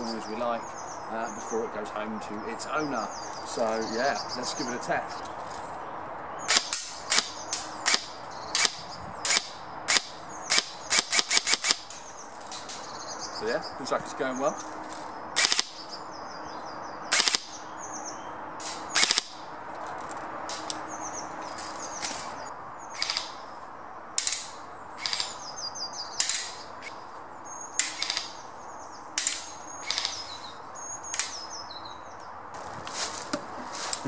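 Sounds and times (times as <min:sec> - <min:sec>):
small birds chirping: 0:00.0 - 0:34.0
airsoft rifle shots cracking: 0:06.5 - 0:12.6, 0:15.4 - 0:15.9, 0:17.1 - 0:17.6, 0:18.6 - 0:19.4, 0:23.0 - 0:23.4, 0:24.2 - 0:25.5, 0:26.2 - 0:27.0, 0:27.8 - 0:28.4, 0:29.2 - 0:30.4.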